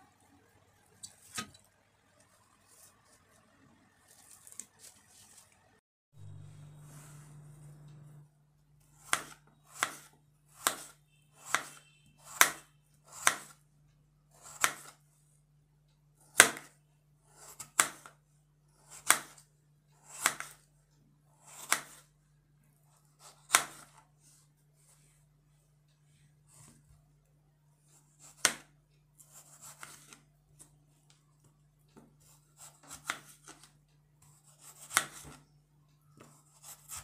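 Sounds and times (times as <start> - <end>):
knife slicing potatoes on board: 8.8 - 13.6, 14.3 - 15.0, 16.3 - 18.2, 18.8 - 20.7, 21.4 - 22.1, 23.0 - 24.0, 27.8 - 30.7, 32.0 - 35.5, 36.2 - 37.0.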